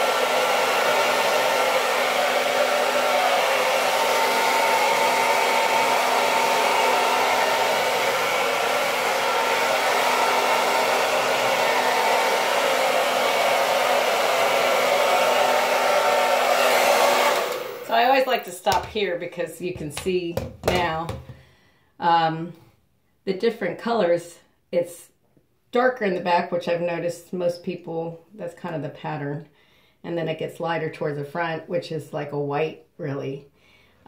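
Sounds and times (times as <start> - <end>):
hair dryer blowing: 0.0 - 21.4.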